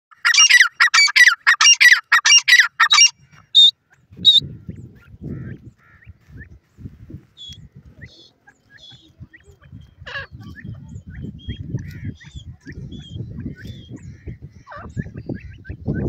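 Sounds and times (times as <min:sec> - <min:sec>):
francolin calling: 0:00.1 - 0:03.7
short high peeps: 0:00.3 - 0:03.7.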